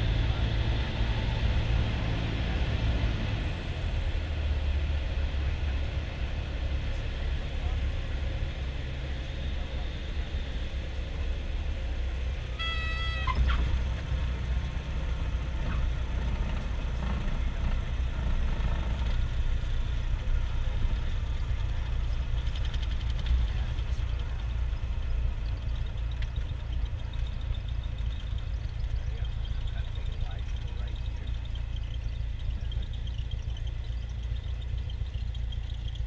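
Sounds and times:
propeller plane engine droning: 0:00.0 - 0:36.0
brief high tone: 0:12.5 - 0:13.6.

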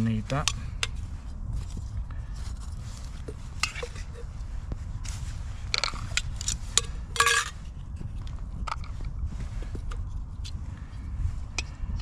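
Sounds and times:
steady low rumble: 0:00.0 - 0:12.0
camping stove parts clicking: 0:05.7 - 0:07.6.

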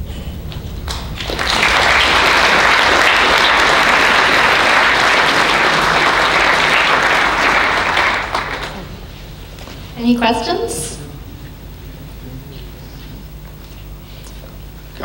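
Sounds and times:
audience applauding: 0:00.6 - 0:09.8.

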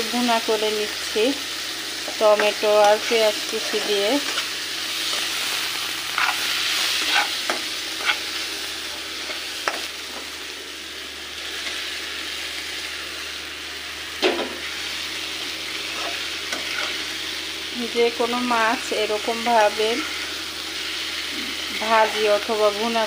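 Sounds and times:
vegetables sizzling in hot oil: 0:00.0 - 0:23.0
metal spatula scraping pan: 0:06.1 - 0:08.4, 0:15.9 - 0:17.0.

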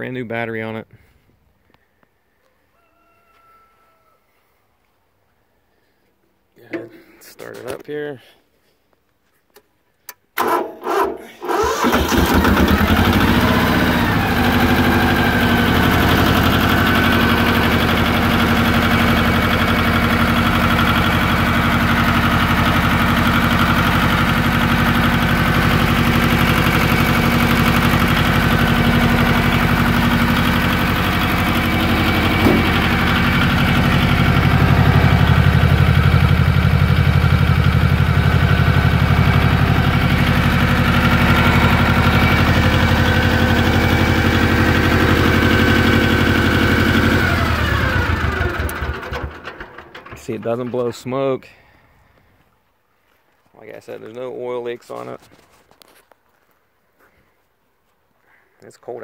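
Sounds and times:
tractor diesel engine idling: 0:10.4 - 0:51.4.

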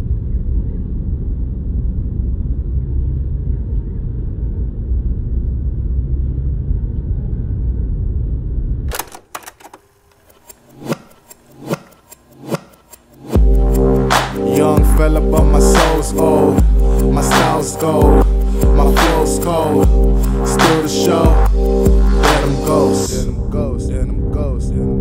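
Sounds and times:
loud low rumble: 0:00.0 - 0:08.9, 0:13.4 - 0:25.0
sharp clicks: 0:08.9 - 0:13.5.

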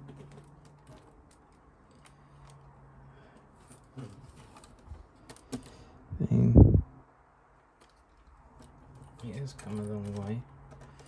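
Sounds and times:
plastic parts clicking and tapping: 0:00.0 - 0:02.7, 0:07.8 - 0:11.0
low steady hum: 0:05.6 - 0:10.6.

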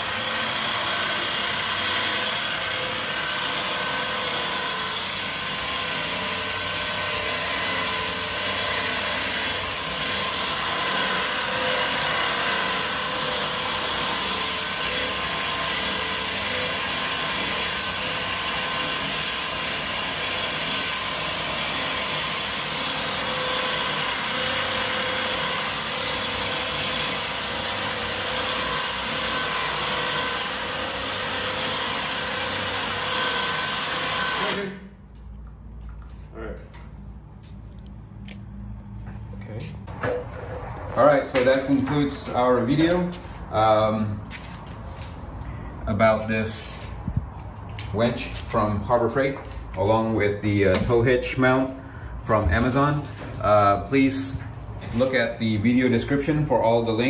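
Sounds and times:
electric winch motor whine: 0:00.0 - 0:34.9.

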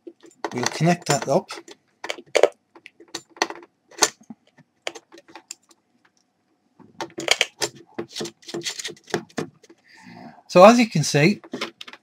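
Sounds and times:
metallic plug clicks and rattles: 0:00.1 - 0:05.8, 0:07.0 - 0:09.7.

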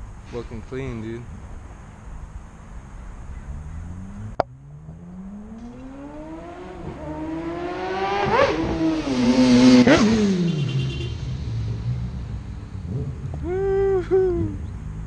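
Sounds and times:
motorcycle accelerating past: 0:03.3 - 0:13.3.

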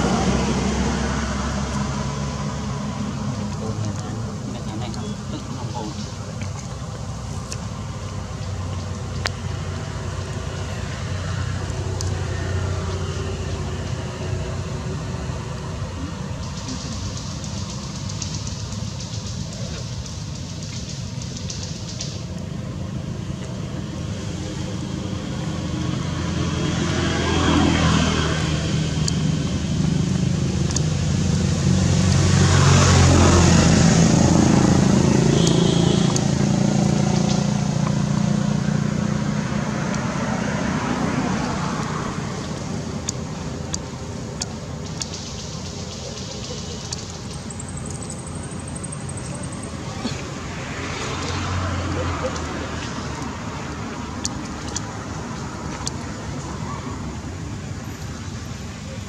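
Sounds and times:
road traffic engine drone: 0:00.0 - 0:59.0.

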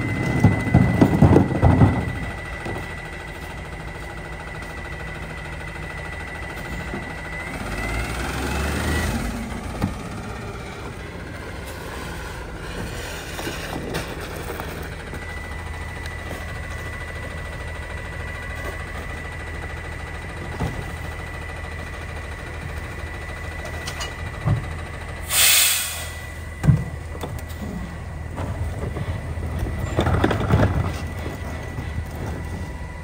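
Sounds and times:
cart clattering: 0:00.0 - 0:03.5, 0:28.3 - 0:32.5
garbage truck idling: 0:00.0 - 0:33.0
air hiss burst: 0:25.2 - 0:26.3.

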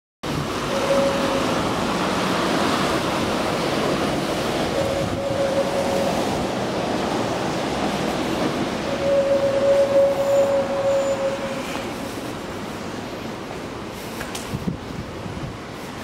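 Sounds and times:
wind buffeting microphone: 0:00.3 - 0:10.8, 0:14.4 - 0:16.0.

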